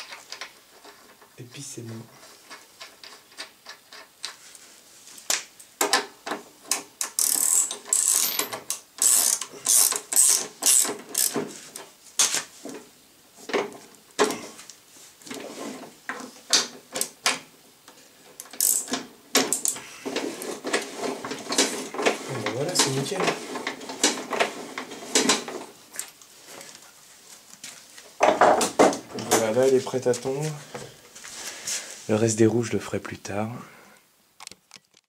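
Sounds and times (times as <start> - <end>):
ratchet wrench clicking: 7.0 - 11.4, 18.5 - 18.9.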